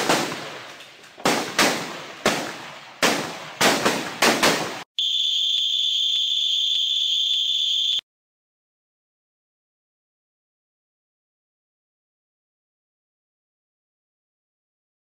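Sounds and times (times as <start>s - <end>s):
rifle shots: 0.0s - 4.8s
steady high whistle: 5.0s - 8.0s.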